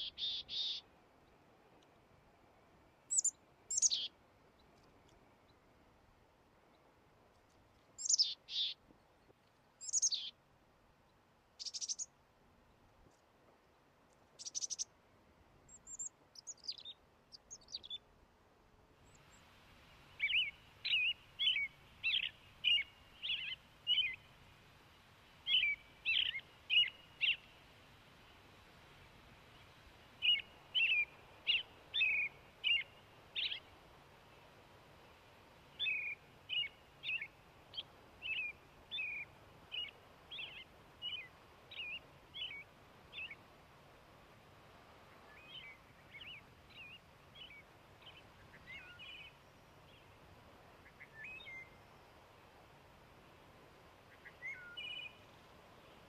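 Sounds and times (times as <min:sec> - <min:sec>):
songbirds singing: 0:00.0 - 0:01.9, 0:03.1 - 0:05.6, 0:07.8 - 0:10.4, 0:11.0 - 0:12.8, 0:14.3 - 0:14.9, 0:15.7 - 0:18.1, 0:19.0 - 0:24.5, 0:25.4 - 0:28.4, 0:29.4 - 0:34.5, 0:35.6 - 0:43.5, 0:45.0 - 0:52.3, 0:54.0 - 0:56.0
background hiss: 0:00.0 - 0:56.0.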